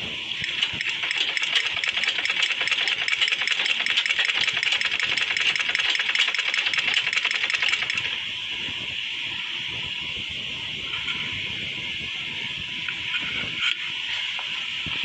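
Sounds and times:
sewing machine stitching: 0:00.4 - 0:08.1.

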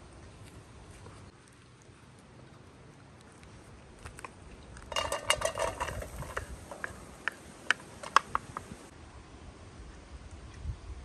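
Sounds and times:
onions clattering into pot: 0:04.9 - 0:07.0.

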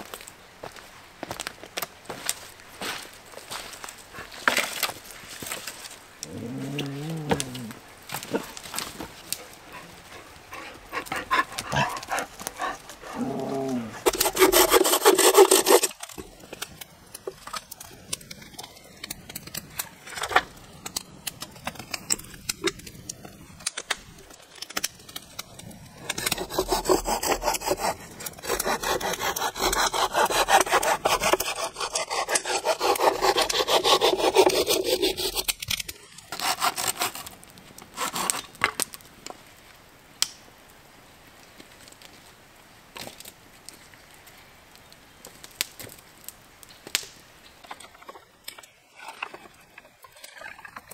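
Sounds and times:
saw cutting through wood: 0:09.7 - 0:16.2, 0:26.0 - 0:35.5, 0:36.3 - 0:37.4, 0:38.0 - 0:38.6.

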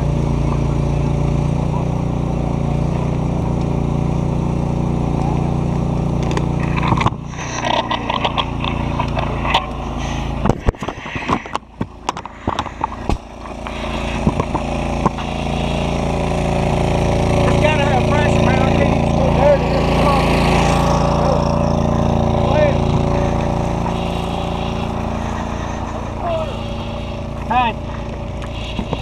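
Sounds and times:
fire engine motor droning: 0:00.0 - 0:29.0
camera handling rustling and scraping: 0:06.2 - 0:15.3.

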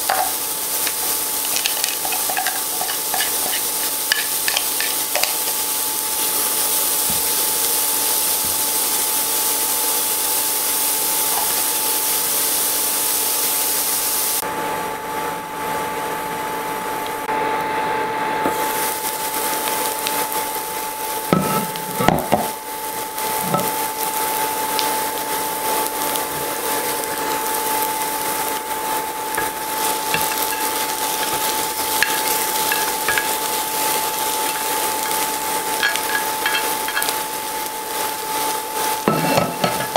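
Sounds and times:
onions sizzling in a frying pan: 0:00.0 - 0:14.5, 0:18.4 - 0:39.9
steady high whine: 0:14.4 - 0:39.9.

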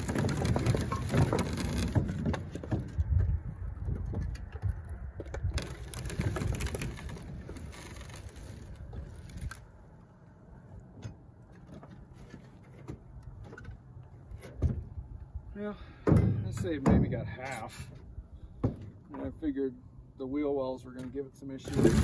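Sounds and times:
gear knocking and rattling: 0:00.0 - 0:03.2.

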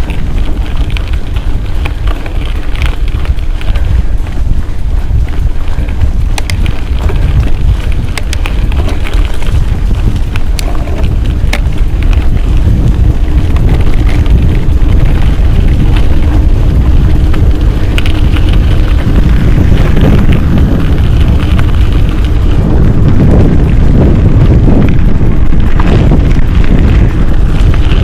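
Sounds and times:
bike clicks and rattles: 0:00.0 - 0:28.0
tyres on dirt: 0:00.0 - 0:28.0
wind buffeting microphone: 0:00.0 - 0:28.0.

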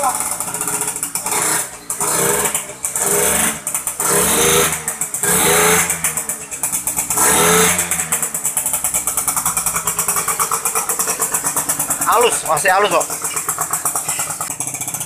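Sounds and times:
two-stroke motorcycle engine revving: 0:00.0 - 0:15.0.

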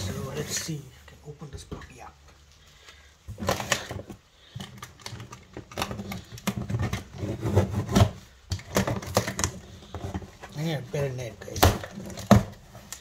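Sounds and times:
scraping and knocking on cardboard: 0:05.6 - 0:10.7.

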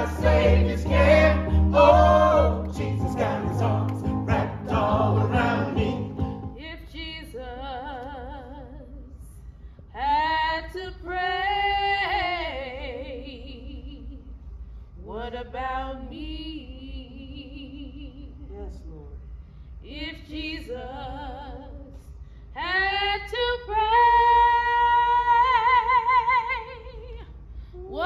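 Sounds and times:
upright piano: 0:00.0 - 0:06.5
voices singing a hymn: 0:00.0 - 0:06.6.

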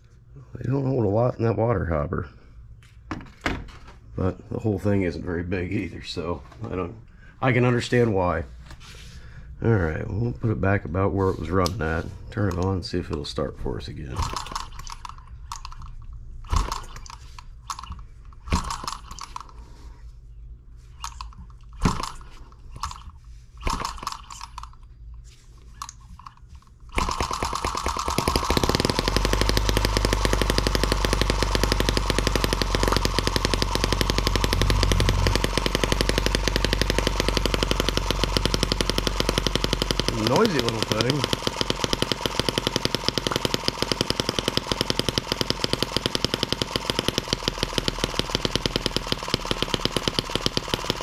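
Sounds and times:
model engine running with firing pops: 0:14.2 - 0:19.5, 0:21.0 - 0:24.7, 0:26.9 - 0:51.0
flywheel clicks and knocks: 0:27.0 - 0:51.0.

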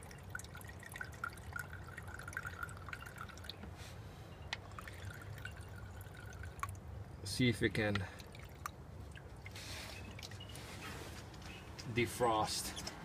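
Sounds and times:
liquid trickling into can: 0:00.0 - 0:03.7, 0:04.6 - 0:07.0, 0:07.9 - 0:10.7.

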